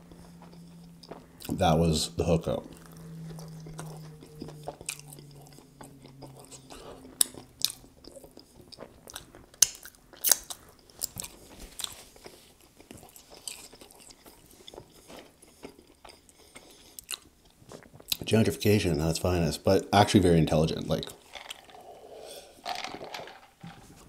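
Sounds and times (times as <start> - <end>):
person humming mmm: 0.0 - 7.9
close chewing: 0.0 - 18.3.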